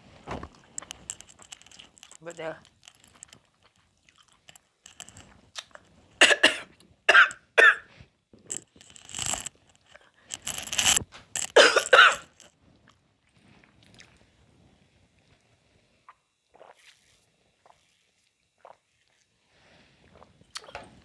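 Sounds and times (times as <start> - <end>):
woman coughing: 6.2 - 7.9, 11.5 - 12.3.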